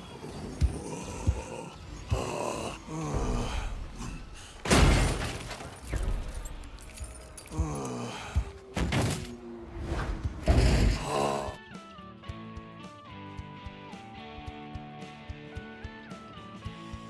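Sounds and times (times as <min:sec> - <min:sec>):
deep grunts and growls: 0:00.0 - 0:04.7, 0:07.3 - 0:08.7, 0:10.3 - 0:11.6
loud crash with shattering: 0:04.6 - 0:06.3
film music: 0:05.6 - 0:17.0.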